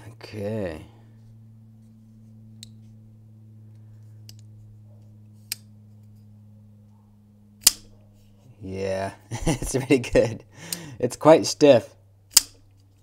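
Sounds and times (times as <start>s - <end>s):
folding knife blade clicks: 7.6s - 7.9s, 12.3s - 12.6s
knife blade snapping open: 7.6s - 7.9s, 12.3s - 12.6s.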